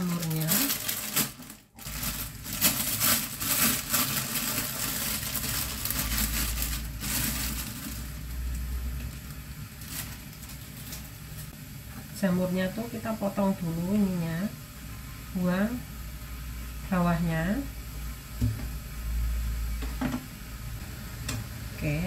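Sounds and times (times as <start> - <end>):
plastic bag crinkling: 0.0 - 11.5
low steady hum: 0.0 - 22.0.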